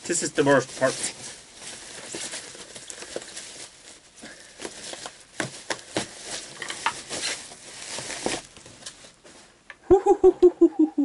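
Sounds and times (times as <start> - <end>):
plastic bag rustling: 0.0 - 9.7.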